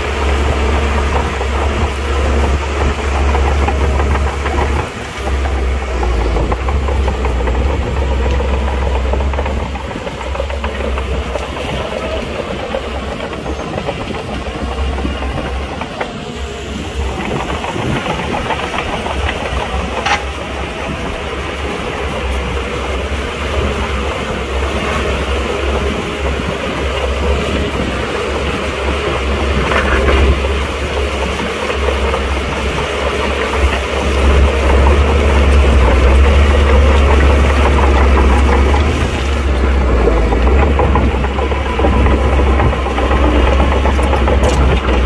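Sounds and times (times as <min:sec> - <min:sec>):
bulldozer diesel engine rumbling: 0:00.0 - 0:45.0.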